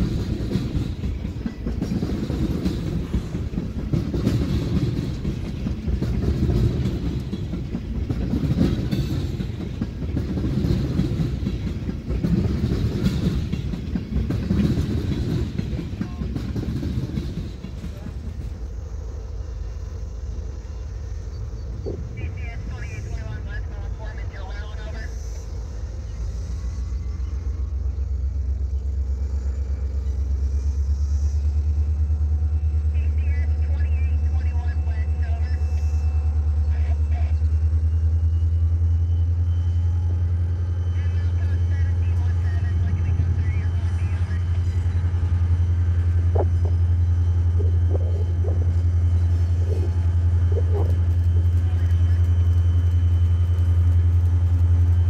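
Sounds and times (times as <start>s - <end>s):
diesel locomotive engine rumble: 0.0s - 55.0s.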